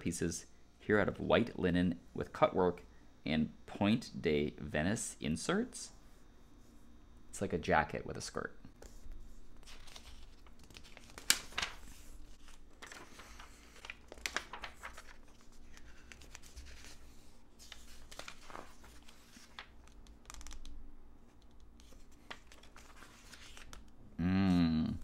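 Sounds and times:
magazine pages rustling: 0:08.8 - 0:20.7, 0:21.3 - 0:23.9.

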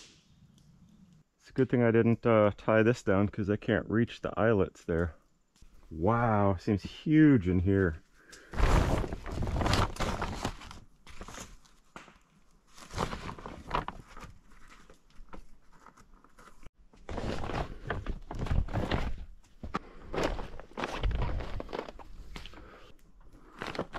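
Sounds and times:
plastic tarp rustling: 0:08.4 - 0:11.5, 0:12.7 - 0:14.9, 0:17.0 - 0:19.3, 0:20.0 - 0:22.4.

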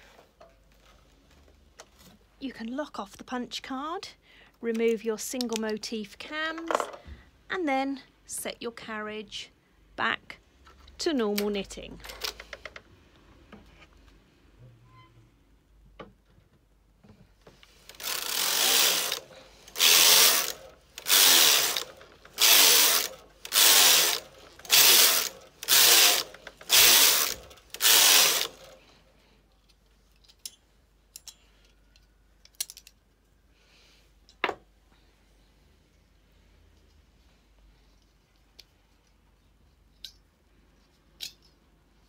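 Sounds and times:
knitting machine carriage passes: 0:17.9 - 0:28.8.

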